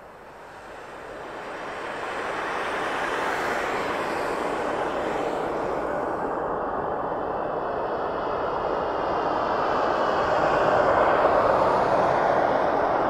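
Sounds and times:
jet airliner flying overhead: 0.0s - 13.0s.

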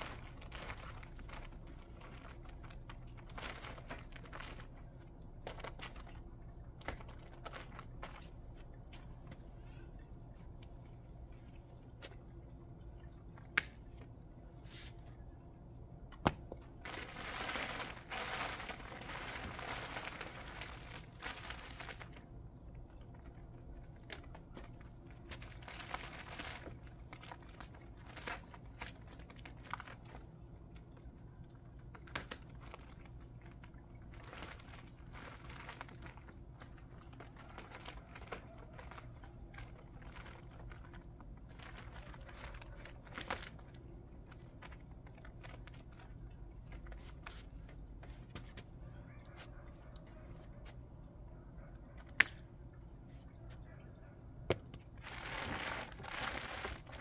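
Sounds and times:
thin sheet crinkling: 0.0s - 9.4s, 16.3s - 30.9s, 31.8s - 48.8s, 54.5s - 57.0s.

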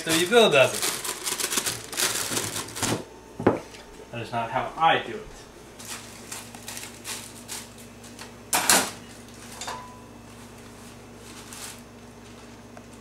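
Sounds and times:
plastic bag rustling: 0.0s - 3.1s, 5.7s - 8.3s, 10.2s - 13.0s
steady low hum: 0.0s - 13.0s.

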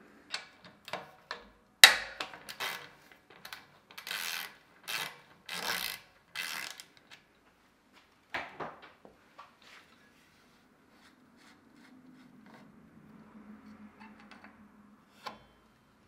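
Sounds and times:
axle unscrewing strokes: 10.9s - 12.8s.

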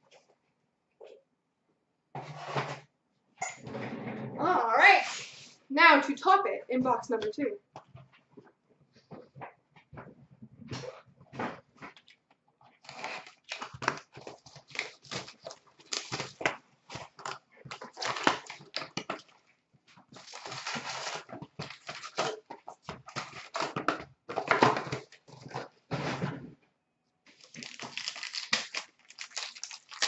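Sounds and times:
shrink-wrap and cardboard tearing: 12.8s - 19.4s, 20.1s - 25.3s, 27.3s - 30.0s.

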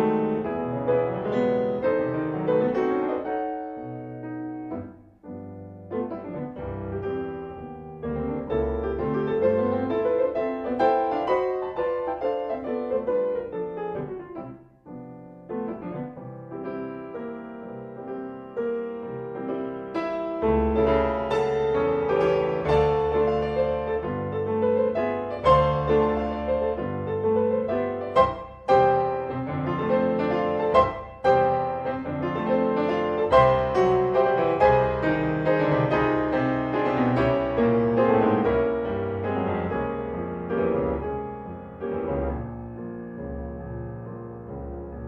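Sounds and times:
solo piano chords: 0.0s - 45.0s.

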